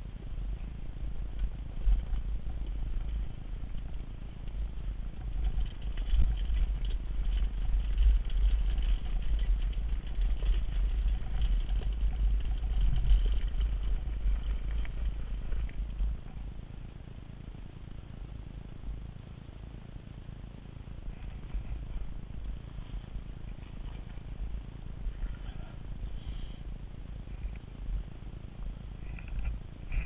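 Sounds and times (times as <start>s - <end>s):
tyre rumble: 0.0s - 16.8s
bike rattling: 0.4s - 19.1s, 19.8s - 30.0s
wind buffeting microphone: 0.7s - 16.6s.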